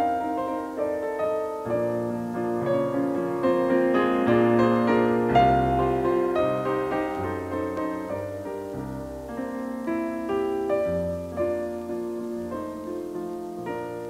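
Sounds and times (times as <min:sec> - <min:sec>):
piano music on radio: 0:00.0 - 0:14.0.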